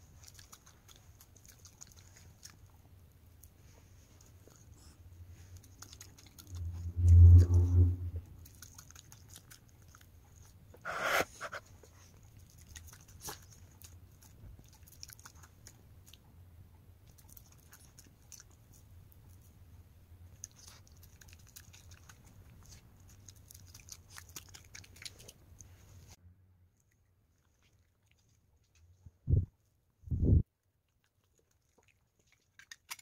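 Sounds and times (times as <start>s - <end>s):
dog chewing with clicks: 0.1s - 3.5s, 5.6s - 6.8s, 8.4s - 10.8s, 12.1s - 19.5s, 20.3s - 25.7s, 30.9s - 33.0s.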